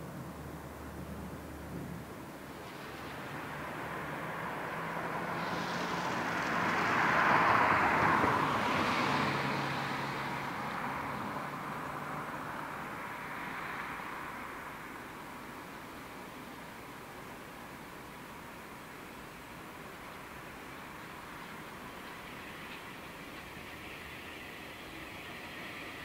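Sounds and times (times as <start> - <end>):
vehicle passing by: 2.5 - 14.8.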